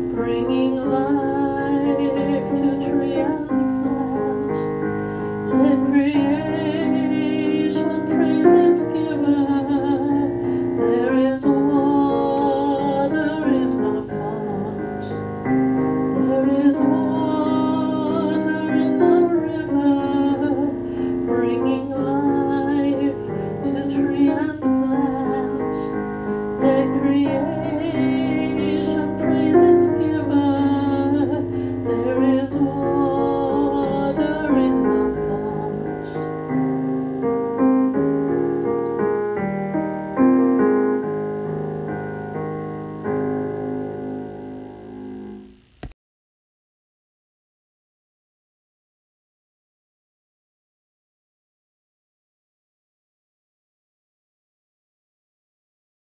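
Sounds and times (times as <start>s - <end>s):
person singing a hymn: 0.0s - 15.4s, 16.1s - 36.6s
piano accompaniment: 0.0s - 45.9s.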